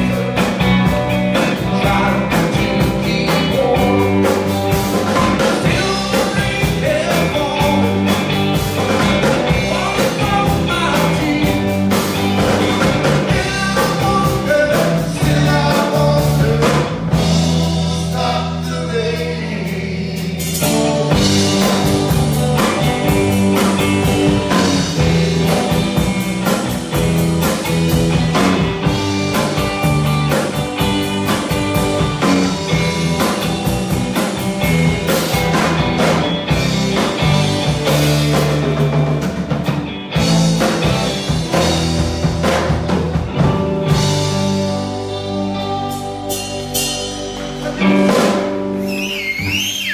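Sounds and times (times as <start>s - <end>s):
live rock band playing: 0.0s - 49.9s
person singing: 1.3s - 8.3s, 9.3s - 12.1s, 13.1s - 21.0s.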